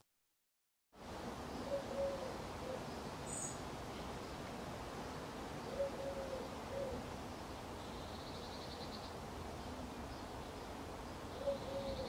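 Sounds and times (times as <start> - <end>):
pigeon cooing: 1.6 - 2.9, 5.7 - 7.0, 11.4 - 12.0.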